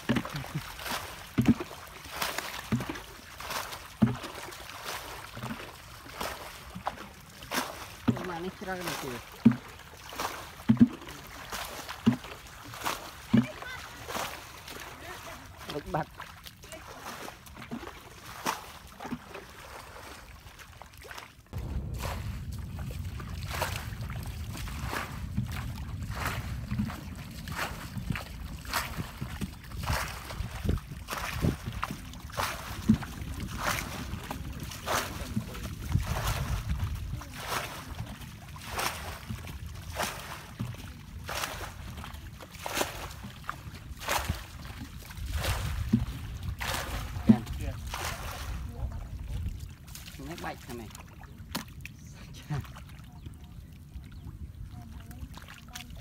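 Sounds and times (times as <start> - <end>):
hoe chopping mud under water: 0.0 - 20.3, 21.0 - 49.5, 50.2 - 52.0
water splashing: 0.0 - 56.0
wind rumble on microphone: 21.5 - 42.4, 43.0 - 50.0, 52.2 - 56.0.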